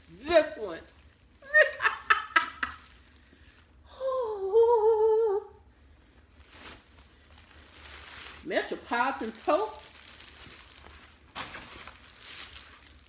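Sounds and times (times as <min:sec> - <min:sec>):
woman humming: 0:03.9 - 0:05.6.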